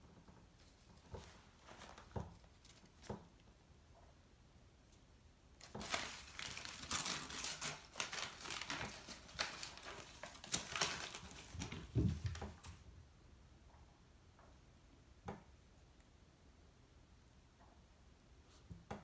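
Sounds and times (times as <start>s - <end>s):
newspaper crinkling and tearing: 1.2s - 3.2s, 5.6s - 12.7s.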